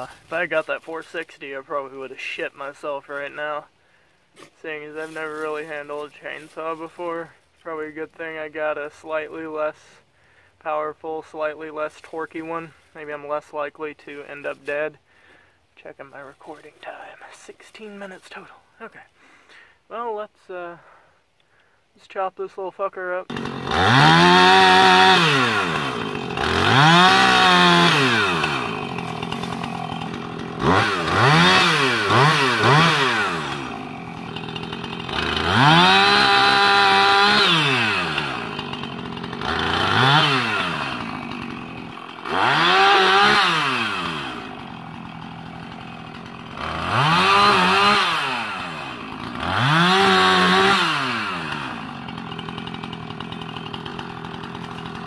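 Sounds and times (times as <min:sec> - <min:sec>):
chainsaw engine revving: 0:23.3 - 0:55.0.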